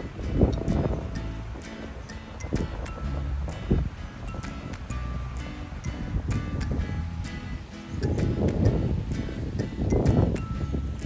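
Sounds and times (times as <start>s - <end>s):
background music with held tones: 0.0s - 11.0s.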